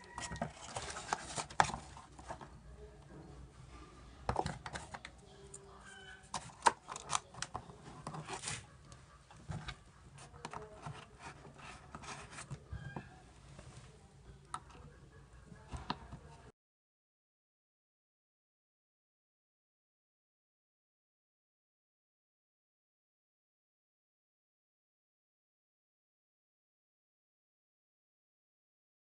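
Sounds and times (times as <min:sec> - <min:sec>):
tape and foam rustling: 0:00.0 - 0:02.4.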